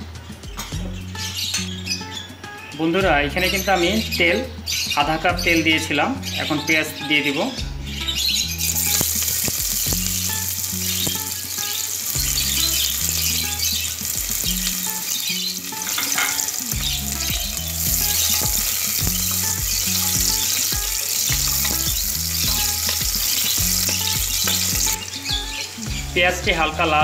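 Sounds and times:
onions sizzling in hot oil: 8.4 - 26.1.

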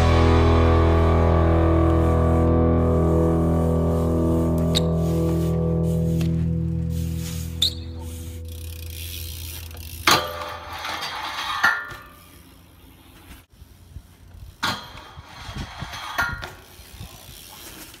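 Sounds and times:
bike rolling over pavement: 2.9 - 18.0
sharp knocks of bike: 10.0 - 10.7, 14.6 - 15.2.

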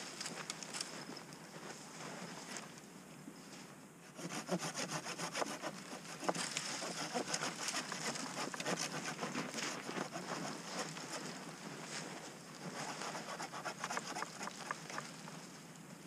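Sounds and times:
hand saw cutting branch: 4.1 - 11.3, 12.6 - 15.1.

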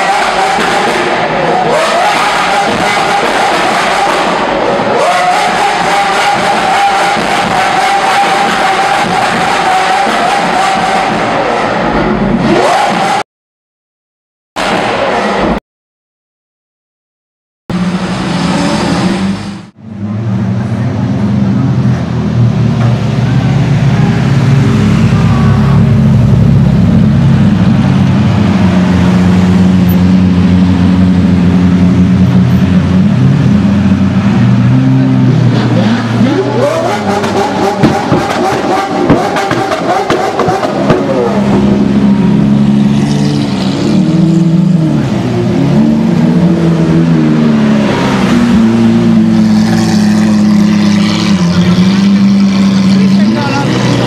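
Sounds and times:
car engine revving: 0.0 - 13.2, 17.7 - 54.0.

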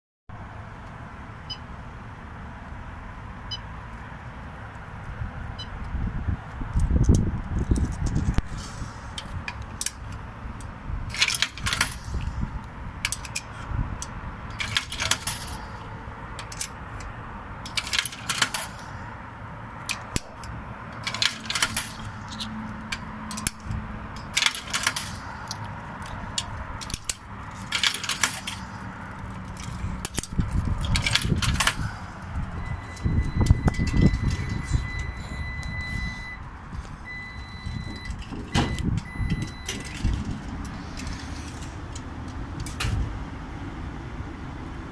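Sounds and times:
coins clinking into coin slot: 11.1 - 12.2, 14.5 - 15.7, 17.7 - 18.9, 21.0 - 22.5, 24.2 - 25.3, 26.8 - 28.7, 30.0 - 31.9.

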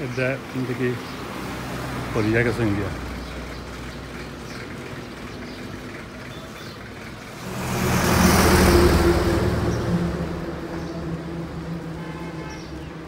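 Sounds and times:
vehicle passing on road: 0.0 - 13.0
low engine hum: 2.0 - 13.0.

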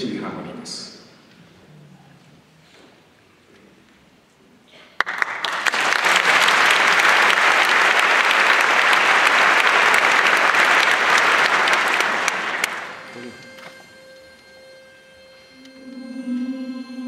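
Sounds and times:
audience applauding: 4.8 - 13.5.

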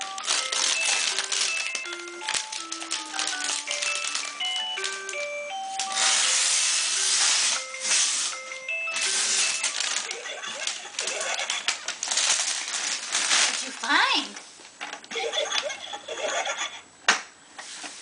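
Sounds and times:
toy playing tinny tune: 0.0 - 10.9
wrapping paper crinkling and tearing: 0.0 - 14.3.

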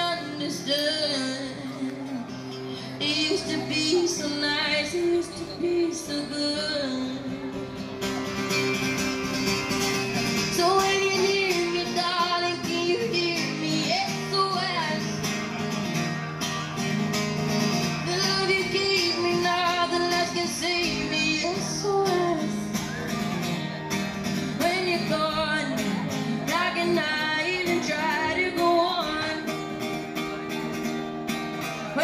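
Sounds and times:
woman singing: 0.0 - 2.2, 2.9 - 7.6, 10.3 - 15.3, 17.9 - 22.8, 24.3 - 29.9
acoustic guitar: 0.0 - 32.0.

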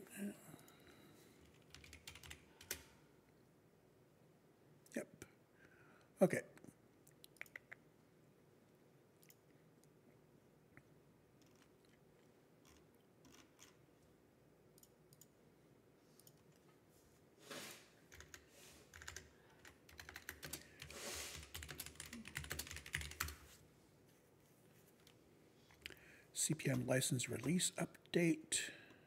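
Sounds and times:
computer keyboard typing: 1.4 - 2.9, 11.4 - 11.7, 12.6 - 13.8, 18.1 - 23.5.

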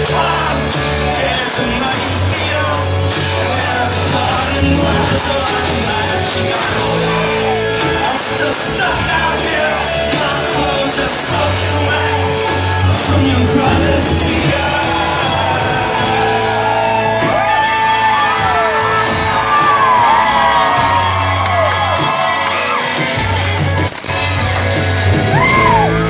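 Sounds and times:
crowd shouting: 0.0 - 23.9, 25.1 - 26.0
live rock band playing: 0.0 - 26.0
whistle-like tones: 23.8 - 24.3.

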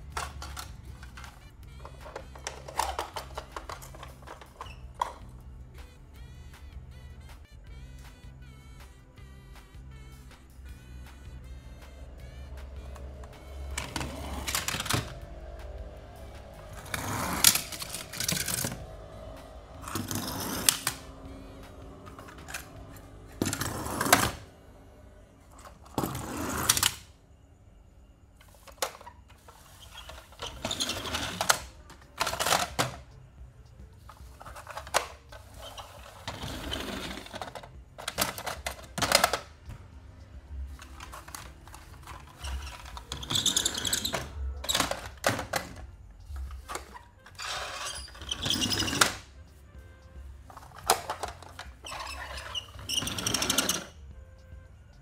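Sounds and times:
toy wheels rolling on plastic: 0.0 - 5.4, 12.2 - 24.5, 25.4 - 27.1, 28.4 - 33.1, 34.0 - 39.5, 40.7 - 49.3, 50.5 - 54.0
toys rattling and clicking: 0.0 - 5.4, 12.2 - 15.3, 16.8 - 19.0, 21.8 - 24.4, 25.6 - 27.1, 28.4 - 33.2, 34.0 - 39.5, 40.7 - 49.3, 50.5 - 54.0.

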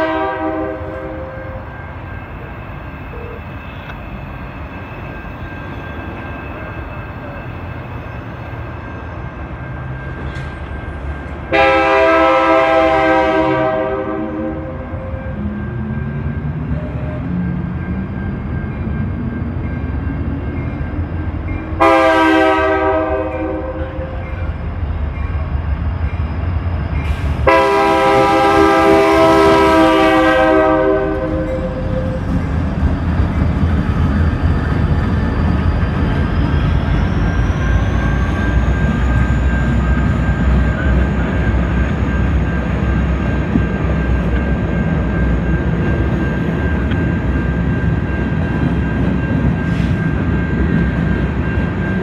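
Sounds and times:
locomotive horn blasts: 0.0 - 1.7, 11.5 - 15.4, 21.8 - 24.2, 27.4 - 32.2
diesel locomotive engines passing: 0.0 - 52.0
freight cars rolling on rails: 0.0 - 52.0.

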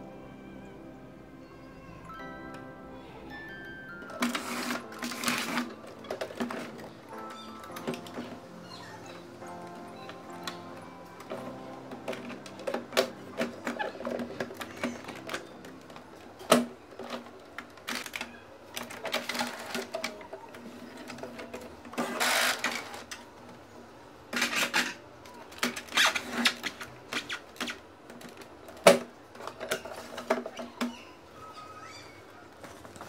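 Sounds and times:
plastic printer parts clicking: 4.1 - 9.2, 10.0 - 23.6, 24.3 - 31.1.

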